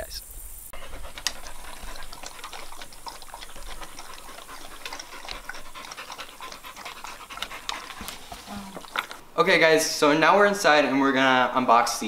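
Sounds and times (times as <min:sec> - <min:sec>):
dogs panting: 0:00.7 - 0:09.3, 0:10.2 - 0:12.0
dog clicking at metal bowl: 0:00.8 - 0:09.2.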